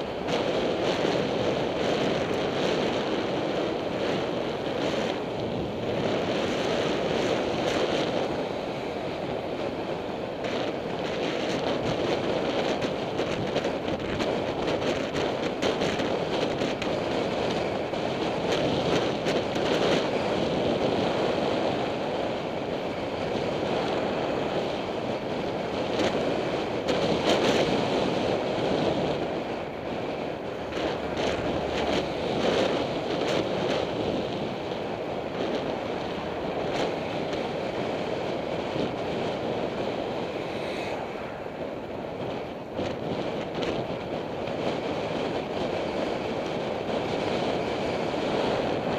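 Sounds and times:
wind rushing over microphone: 0.0 - 48.9.

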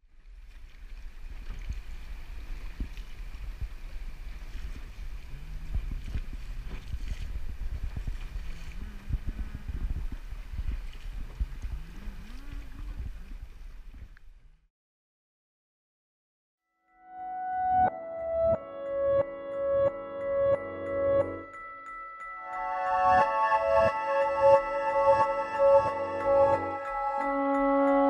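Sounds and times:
wind buffeting microphone: 0.7 - 14.2.

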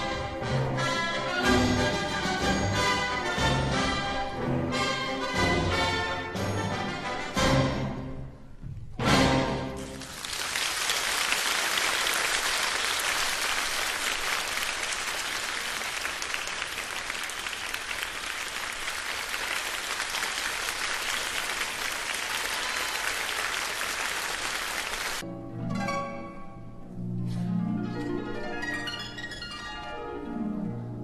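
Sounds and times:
plucked-string orchestral music: 0.0 - 9.9, 25.2 - 31.0
audience applauding: 9.8 - 25.2.

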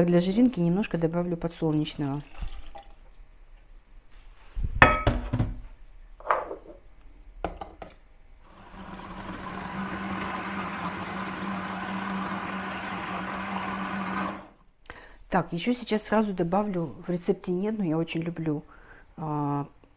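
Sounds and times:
kitchenware knocking and clinking: 4.8 - 6.8
hand blender motor running: 8.5 - 14.6.

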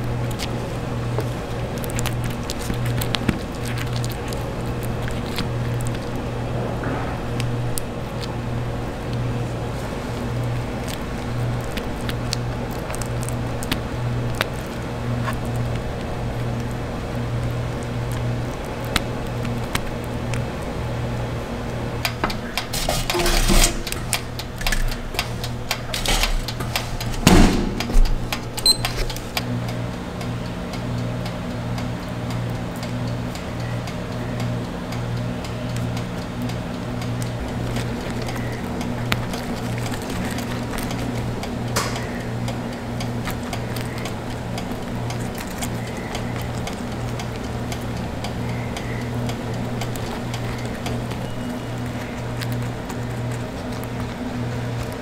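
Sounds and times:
cafe machinery hum: 0.0 - 55.0.

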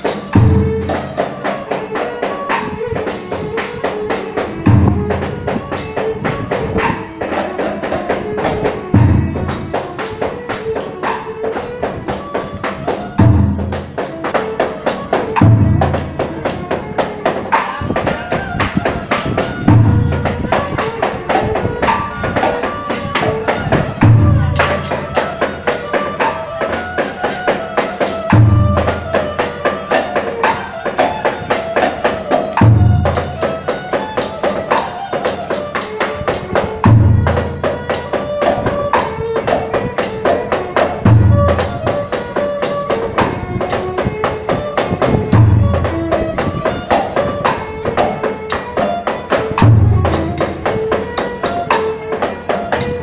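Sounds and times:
rapid woody percussion clicks: 0.0 - 53.0
deep drum stroke: 0.2 - 1.6, 4.6 - 5.8, 8.8 - 9.8, 15.3 - 16.5, 32.5 - 34.0.

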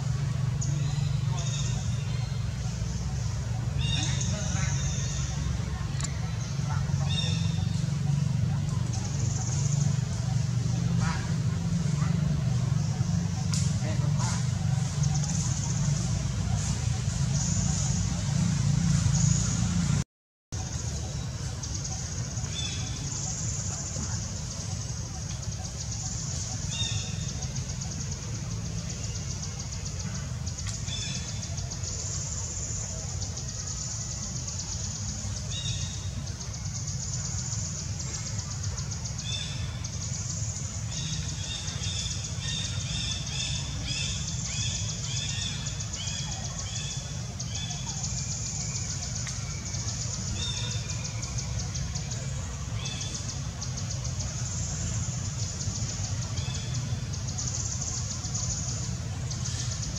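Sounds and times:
insect chorus pulsing: 20.6 - 59.9.

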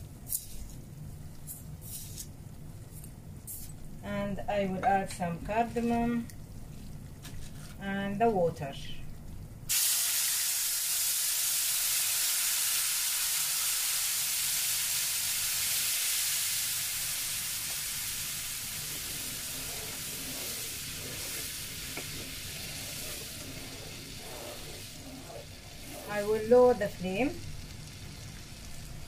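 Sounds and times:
mixture boiling: 9.0 - 29.0
water sizzling in hot fat: 9.7 - 29.0
wooden spoon stirring: 17.6 - 27.7.

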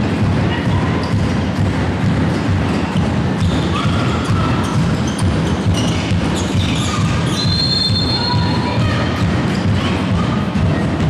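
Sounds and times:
shoes squeaking on court: 2.2 - 10.0.

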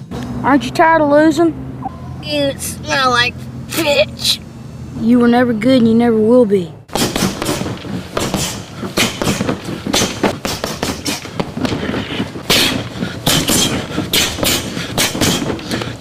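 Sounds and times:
punches striking a heavy bag: 6.9 - 16.0.

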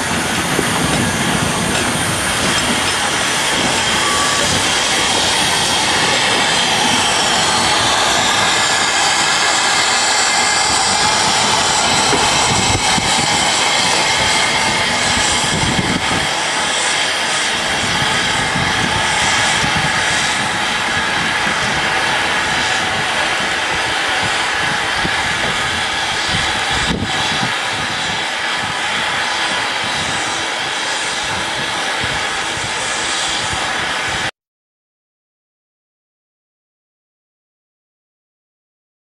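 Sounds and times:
steam locomotives hissing steam: 0.0 - 34.3.

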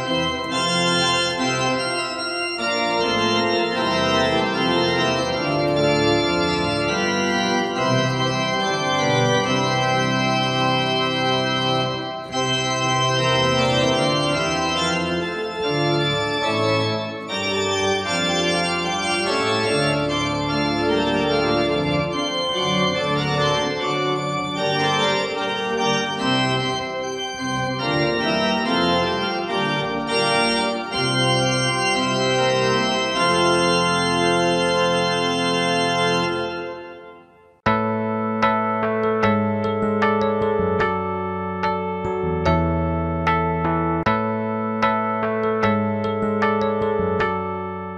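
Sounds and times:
church organ chords: 0.0 - 37.8.

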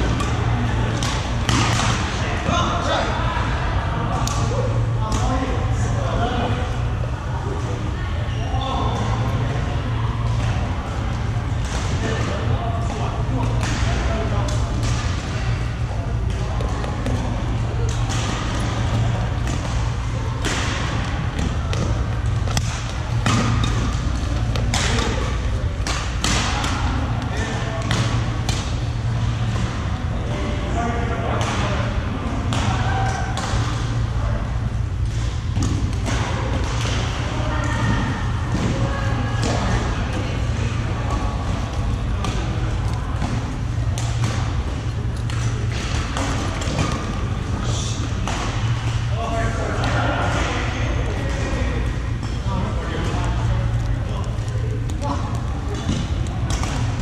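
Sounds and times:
faint voices: 0.0 - 57.0
steady low hum: 0.0 - 57.0
racquets hitting shuttlecocks: 16.2 - 29.8.

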